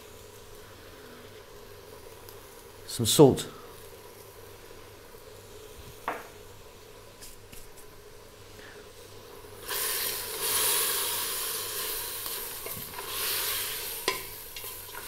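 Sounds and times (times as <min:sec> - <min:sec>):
faint steady hum: 0:00.0 - 0:15.0
food sizzling loudly: 0:08.0 - 0:15.0
wooden spoon stirring in pan: 0:11.6 - 0:15.0.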